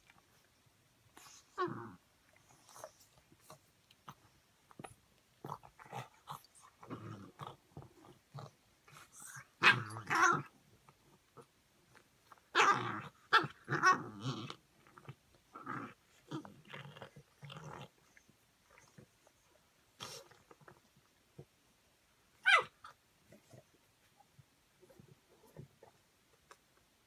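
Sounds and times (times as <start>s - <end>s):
dogs grunting and growling: 1.2s - 11.5s, 12.5s - 19.3s.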